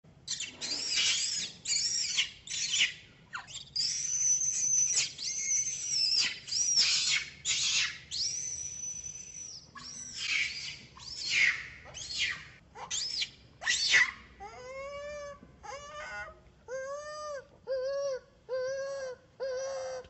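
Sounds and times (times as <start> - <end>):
baby monkey shrill squeals: 0.3 - 16.2.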